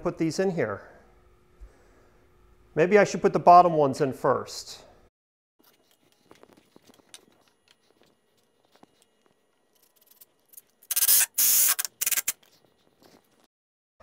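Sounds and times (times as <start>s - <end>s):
impact driver driving screw: 10.9s - 12.4s.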